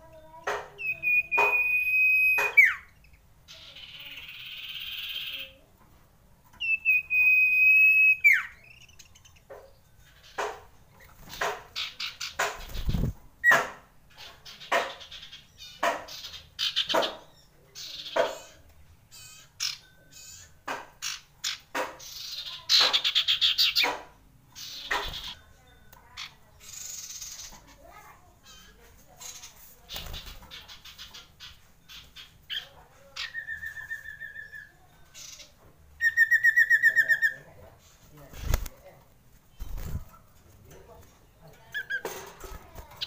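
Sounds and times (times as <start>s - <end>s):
bird singing trills: 0.8s - 5.6s, 6.5s - 23.9s, 24.5s - 37.5s.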